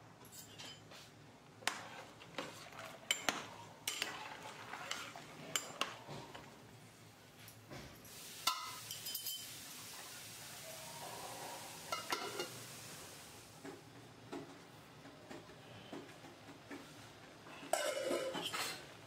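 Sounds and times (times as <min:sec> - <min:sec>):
metal spoon clinking in pot: 0:08.5 - 0:09.5.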